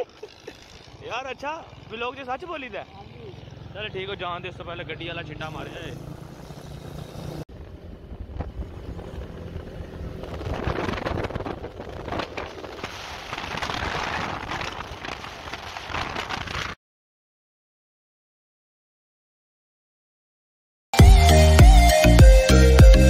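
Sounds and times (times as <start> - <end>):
motorcycle engine running: 0.0 - 16.0
wind buffeting microphone: 7.6 - 16.8.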